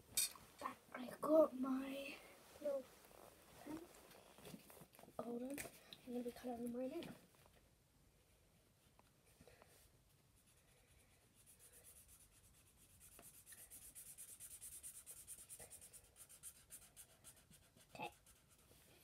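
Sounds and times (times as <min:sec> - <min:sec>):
pen scribbling on paper: 0:11.4 - 0:18.7.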